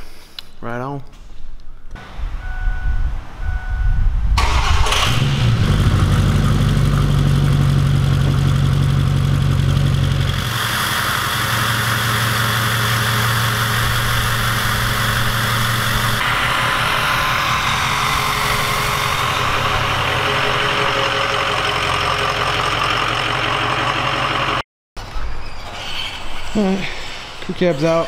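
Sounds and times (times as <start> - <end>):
diesel engine starting and idling: 2.0 - 24.6
hiss: 10.4 - 19.2.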